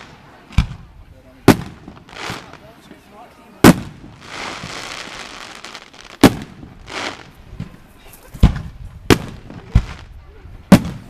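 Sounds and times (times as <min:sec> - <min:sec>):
fireworks hissing: 0:01.4 - 0:03.0, 0:03.6 - 0:10.2.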